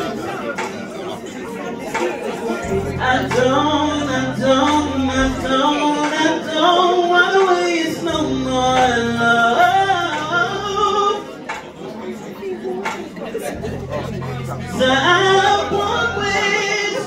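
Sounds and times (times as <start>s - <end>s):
man singing into microphone: 2.5s - 12.2s, 12.8s - 17.0s
low held accompaniment notes: 2.6s - 7.1s, 13.5s - 17.0s.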